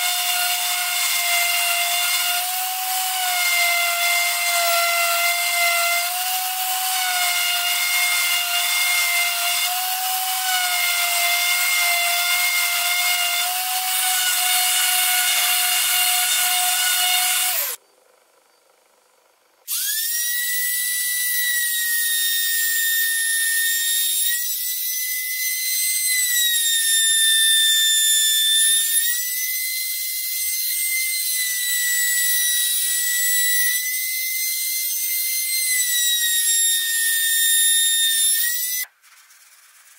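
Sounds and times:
orbital sander whining: 0.0 - 17.8
router whining: 0.0 - 17.8, 19.6 - 38.9.

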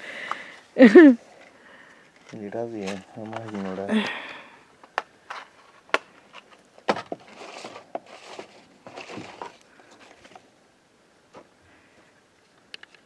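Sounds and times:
soft rustling: 0.5 - 3.9, 5.3 - 10.5
sharp clicks and light knocks: 12.5 - 13.0.

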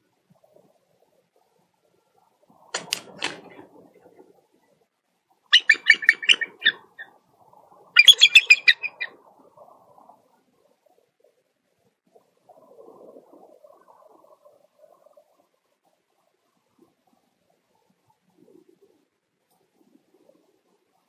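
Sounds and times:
eagle piping chatter: 5.5 - 7.1, 8.0 - 9.2.

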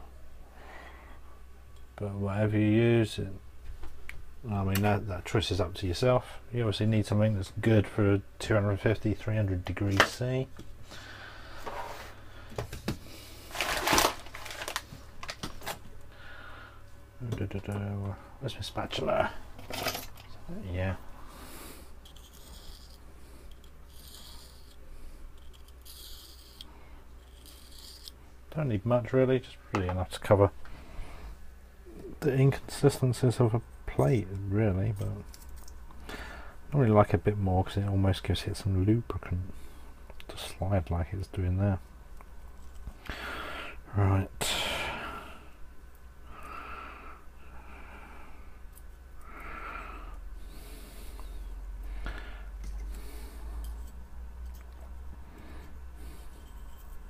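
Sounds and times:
steady low hum: 0.0 - 57.0
man breathing through nose: 0.5 - 1.4, 10.8 - 13.5, 16.1 - 16.9, 21.2 - 23.6, 36.0 - 36.6, 43.0 - 43.8, 46.2 - 48.6, 49.2 - 53.8.

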